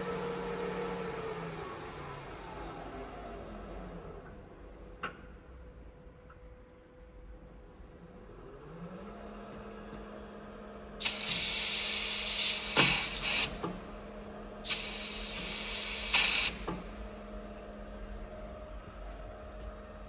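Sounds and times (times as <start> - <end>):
compressed air hissing and blast: 11.0 - 13.7, 14.7 - 16.7
pneumatic click: 11.0 - 14.0, 14.7 - 17.0.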